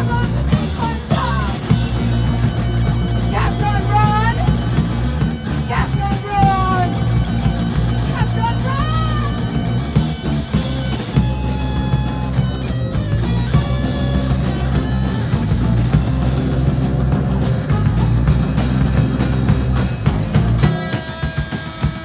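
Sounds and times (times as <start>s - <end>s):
drum kit: 0.0s - 22.0s
electric guitars: 0.0s - 22.0s.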